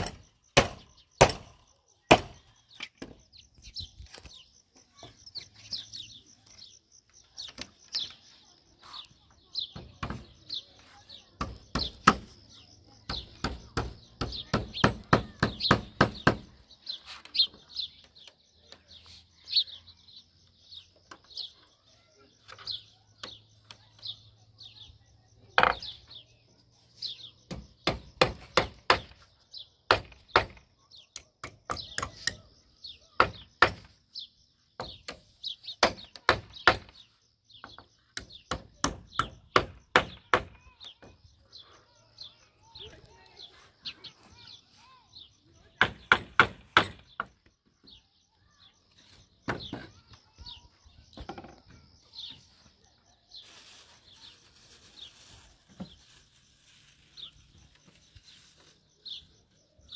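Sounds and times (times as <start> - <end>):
birds chirping: 0.0 - 59.9
hammer knocking on wood: 13.1 - 16.5.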